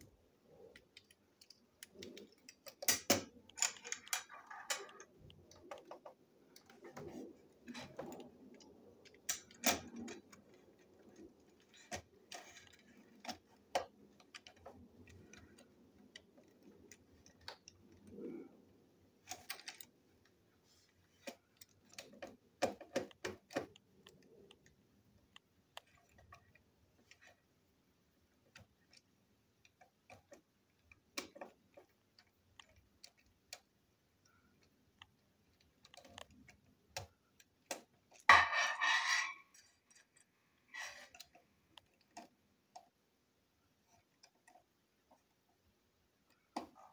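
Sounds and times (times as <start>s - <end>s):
small parts clicking and ticking: 0.0s - 38.4s
parts clattering: 1.0s - 15.7s, 37.6s - 42.3s.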